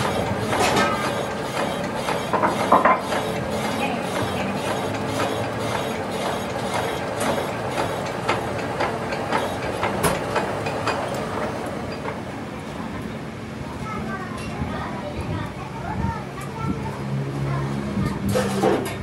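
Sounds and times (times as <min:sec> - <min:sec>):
lathe machine hum: 0:00.0 - 0:12.8.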